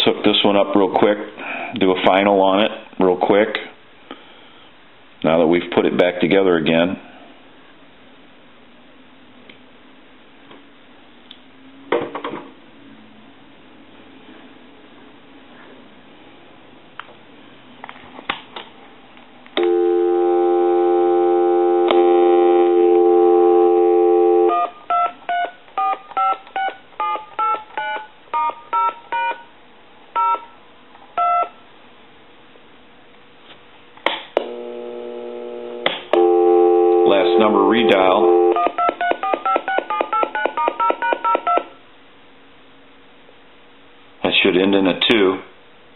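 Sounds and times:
phone line clicks: 19.6 - 20.0
steady dial tone: 19.6 - 27.2, 34.4 - 41.6
touch-tone digits dialing: 38.6 - 41.7.

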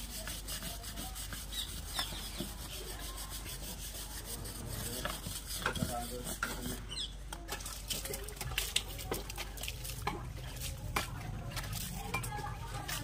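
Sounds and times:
trowel scraping brickwork: 0.0 - 7.7.

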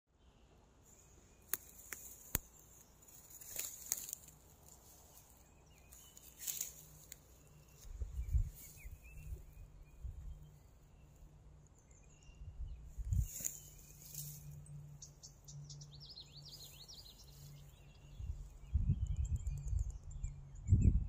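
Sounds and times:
rustling in grass: 0.9 - 11.3, 12.9 - 18.5.

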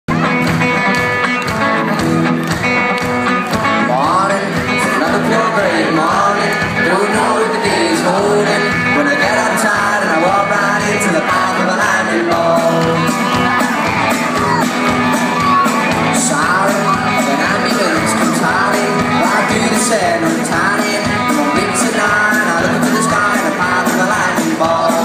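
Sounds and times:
bass guitar: 0.1 - 25.0
drums: 0.1 - 25.0
electric guitar: 0.1 - 25.0
man singing: 3.7 - 13.6, 15.4 - 25.0
crowd shouting along: 4.6 - 25.0.

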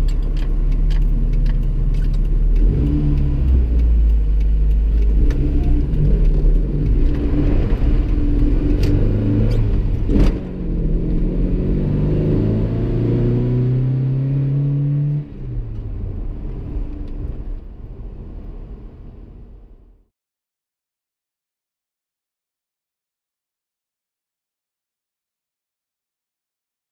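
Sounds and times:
gear change clicks: 0.0 - 11.8
engine revving from inside cab: 0.0 - 19.6.

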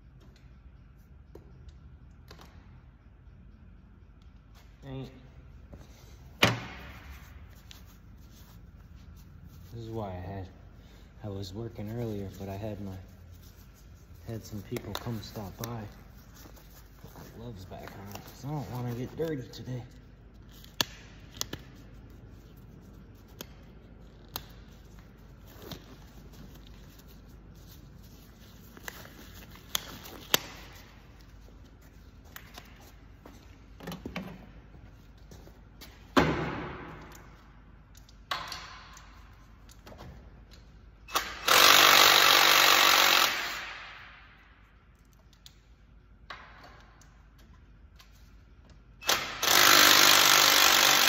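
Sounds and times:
power tool running: 41.1 - 43.8, 49.0 - 51.0.

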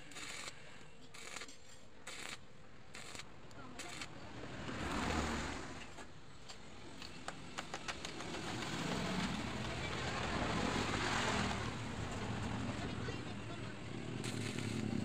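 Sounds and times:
welding arc crackling and hissing: 0.0 - 4.1, 14.2 - 15.0.

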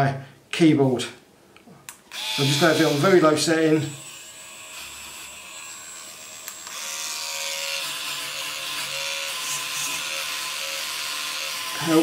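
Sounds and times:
small motor whining: 2.1 - 3.0, 4.0 - 12.0.

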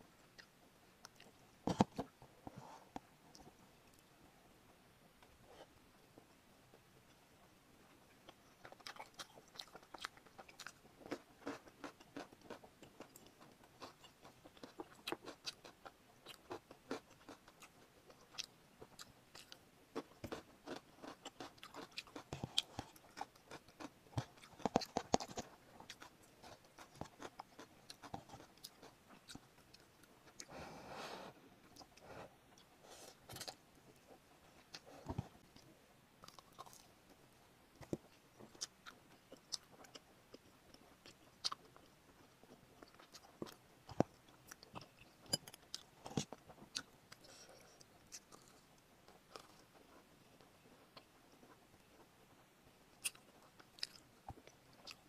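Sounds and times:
mouth chewing noodles: 8.2 - 30.6.

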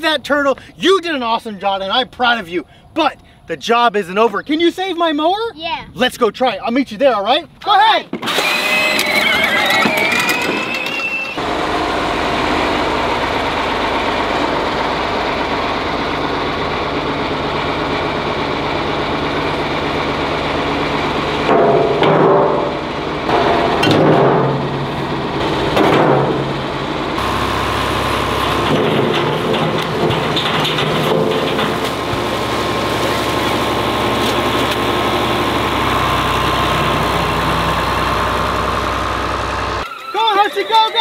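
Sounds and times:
electric toy tractor whine: 8.2 - 21.5, 26.6 - 28.8, 31.9 - 41.0
tractor engine idling: 9.0 - 41.0.

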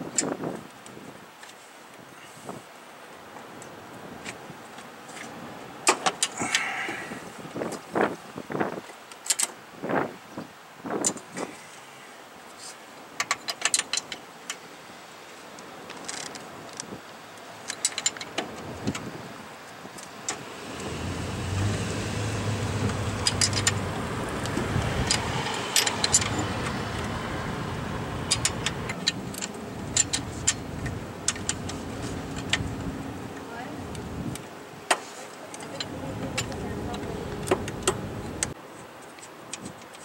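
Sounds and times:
vehicle engine humming: 20.2 - 34.4, 35.6 - 38.6
hand tools clinking on metal: 23.1 - 23.8, 25.0 - 27.1.

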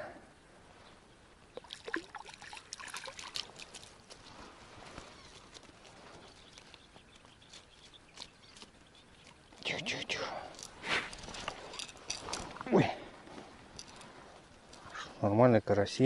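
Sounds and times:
fish splashing in water: 1.6 - 3.9.

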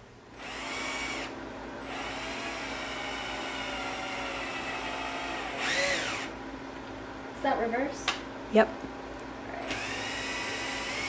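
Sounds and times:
cordless drill boring: 0.4 - 6.4, 9.6 - 11.0.

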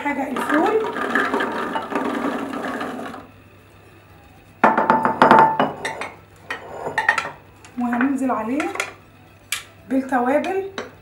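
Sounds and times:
beans tumbling into metal jug: 0.3 - 3.3
glassware clinking: 4.6 - 7.4.

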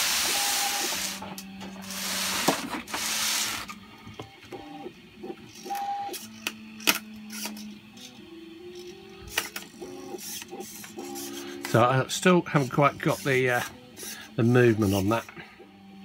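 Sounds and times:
small servo whirring: 0.0 - 3.9, 4.7 - 15.5.

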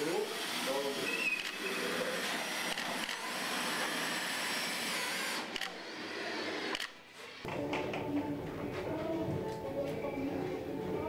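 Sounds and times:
power tool hissing: 0.0 - 6.8.

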